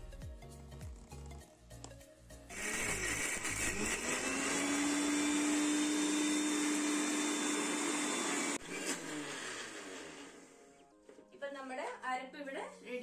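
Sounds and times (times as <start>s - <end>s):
mixer grinder motor running: 2.5s - 10.6s.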